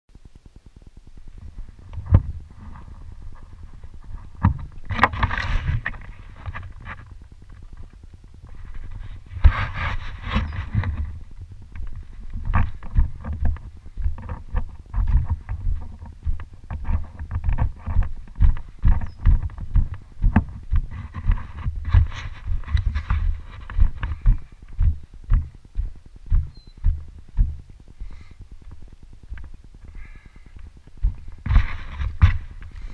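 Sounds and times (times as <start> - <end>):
bike thuds and rattles: 1.4 - 32.9.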